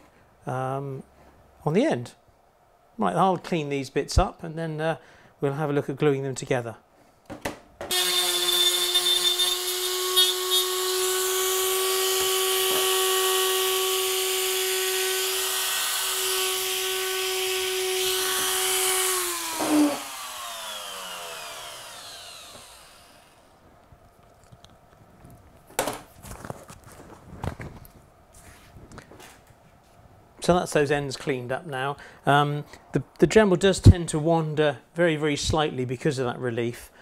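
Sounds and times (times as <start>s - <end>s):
rotary tool sanding: 7.9s - 23.5s
rotary tool spinning down: 18.3s - 23.5s.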